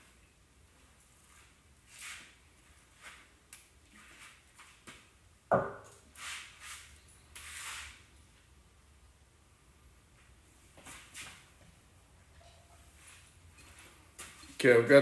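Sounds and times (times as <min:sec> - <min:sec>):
sharp knock: 0:05.5 - 0:05.9.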